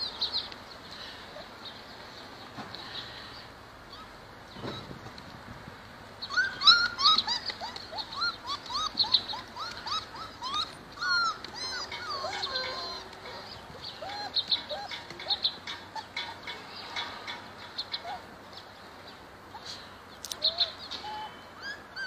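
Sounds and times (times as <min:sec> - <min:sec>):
puppies whining and squealing: 0:03.8 - 0:05.1, 0:06.2 - 0:18.4, 0:20.4 - 0:22.0.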